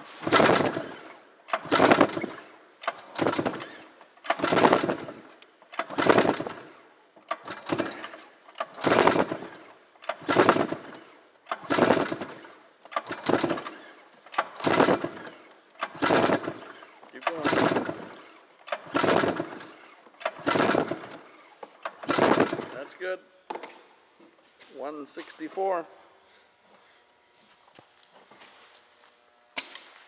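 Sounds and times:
engine cranking: 0.0s - 23.0s
recoil starter pulls: 0.0s - 23.1s.

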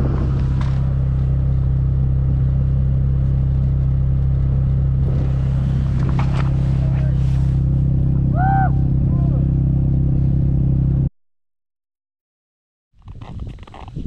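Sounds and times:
off-road vehicle engine drone: 0.0s - 11.1s.

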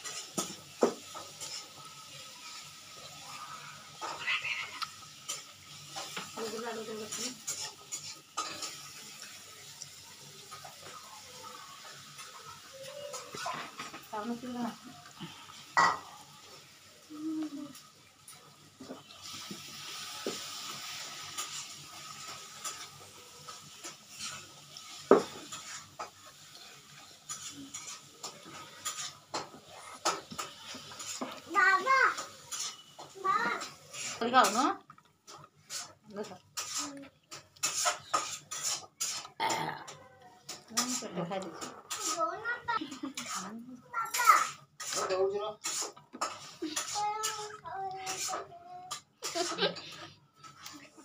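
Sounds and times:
dishes clinking: 15.2s - 16.2s
fingers scraping food on plate: 35.3s - 39.4s, 44.8s - 49.7s.

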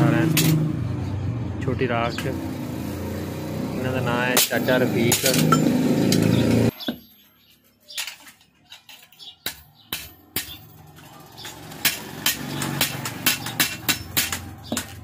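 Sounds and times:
hammer striking steel: 9.4s - 10.8s.

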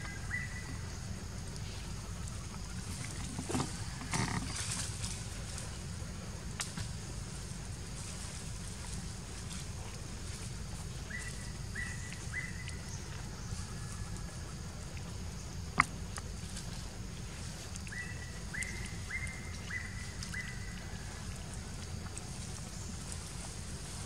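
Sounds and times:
bird whistling calls: 17.9s - 20.8s.

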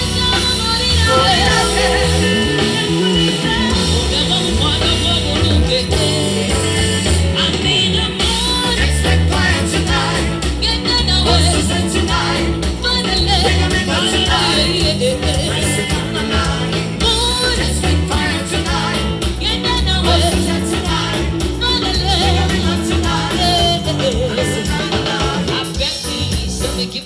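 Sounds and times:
live band music: 0.0s - 27.0s
woman singing lead: 0.0s - 27.0s
heavy bass beat: 0.9s - 7.4s
backing singers: 0.9s - 26.2s.

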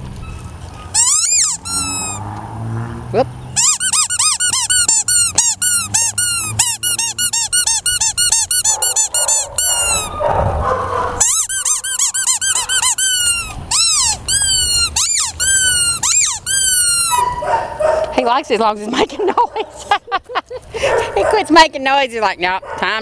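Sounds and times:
squeaky dog toy squeaking: 0.9s - 2.2s, 3.6s - 10.2s, 11.2s - 17.5s.

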